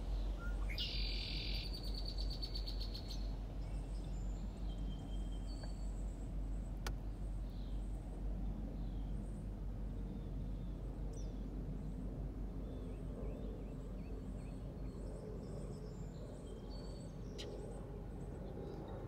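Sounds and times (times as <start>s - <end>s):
steady low rumble: 0.0s - 19.0s
faint bird chirps and whistles: 0.2s - 6.1s.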